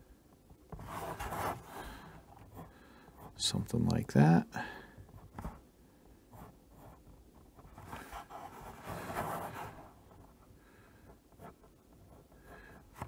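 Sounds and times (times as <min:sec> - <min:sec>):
pencil sketching on paper: 0:00.8 - 0:03.5, 0:07.6 - 0:10.3.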